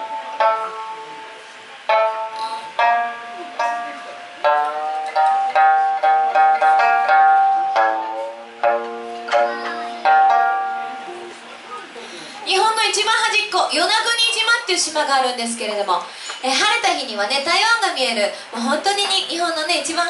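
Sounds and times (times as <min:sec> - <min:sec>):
plucked acoustic guitar melody: 0:00.0 - 0:11.9.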